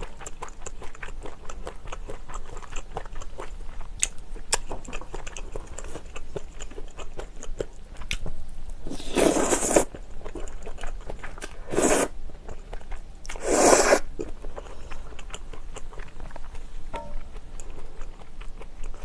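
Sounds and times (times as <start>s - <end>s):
soft chewing and clicks: 0.0s - 8.4s, 9.9s - 11.6s, 12.3s - 13.4s, 14.2s - 19.0s
slurping spaghetti: 8.9s - 10.0s, 11.4s - 12.2s, 13.4s - 14.2s.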